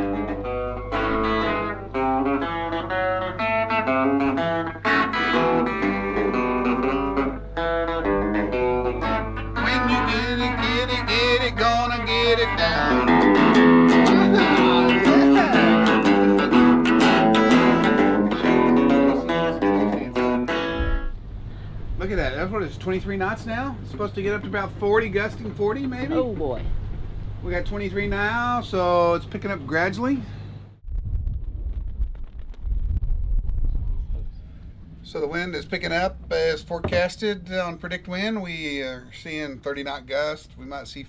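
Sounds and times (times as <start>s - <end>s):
plucked guitar background music: 0.0s - 21.1s.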